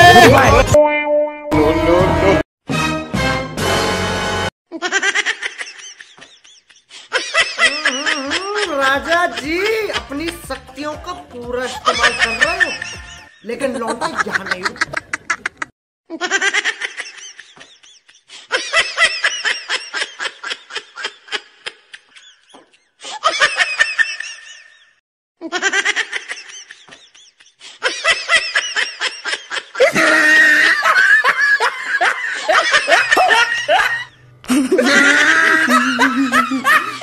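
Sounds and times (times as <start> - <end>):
pulsing laughter: 4.8 - 8.7, 14.0 - 37.0.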